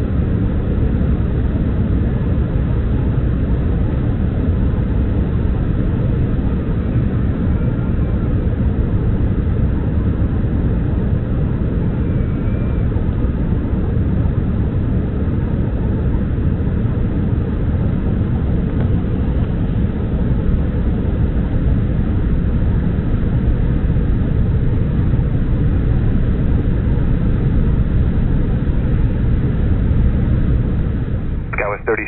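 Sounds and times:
airliner cabin rumble: 31.0 - 32.0.

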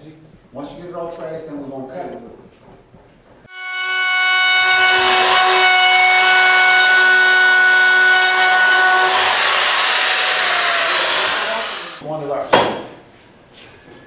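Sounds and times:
router bit cutting wood: 3.5 - 12.0
wood router motor whine: 3.5 - 12.0.

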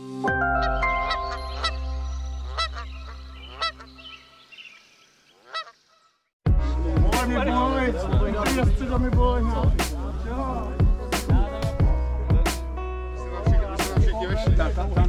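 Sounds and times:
synth chord: 0.0 - 4.1
geese honking: 0.6 - 6.2
rapping over loud music: 7.0 - 10.0, 13.4 - 14.8.

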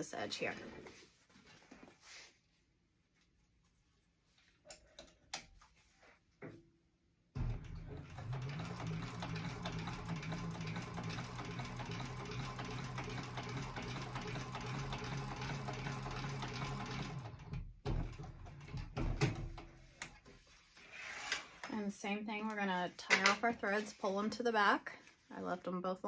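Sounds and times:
industrial sewing machine running: 7.4 - 19.0.

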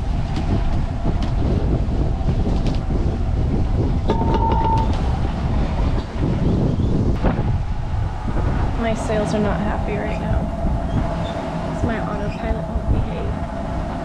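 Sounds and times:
water rushing along a hull: 0.0 - 14.0
wind buffeting microphone: 0.0 - 14.0
electronic beep: 4.1 - 5.0.

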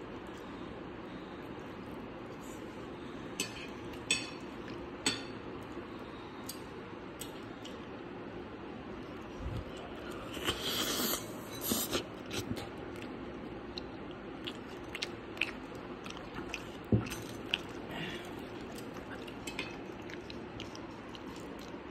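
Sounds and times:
person chewing toast: 9.0 - 21.9.

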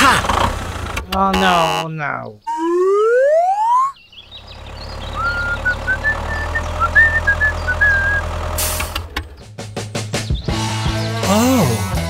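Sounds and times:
tractor engine rumbling: 0.0 - 3.2, 4.0 - 11.8
cartoon-like rising pitch glide: 2.5 - 4.0.

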